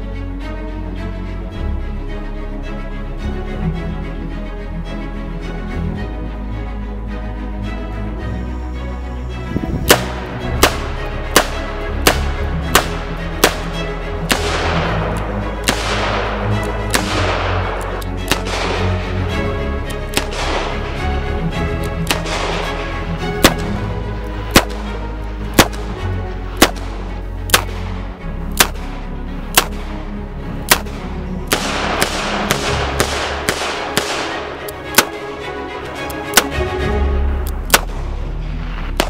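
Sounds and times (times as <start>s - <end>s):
background music: 0.0s - 39.0s
revolver shots: 15.6s - 18.9s.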